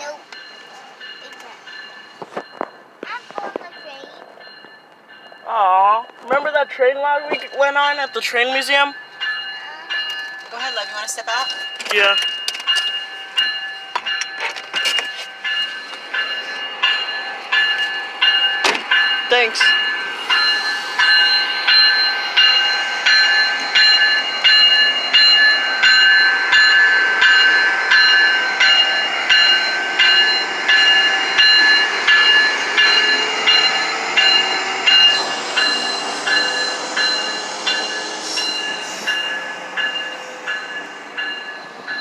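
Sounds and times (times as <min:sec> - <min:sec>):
diesel locomotives rumbling: 0:00.0 - 0:42.0
warning bell clanging: 0:00.0 - 0:42.0.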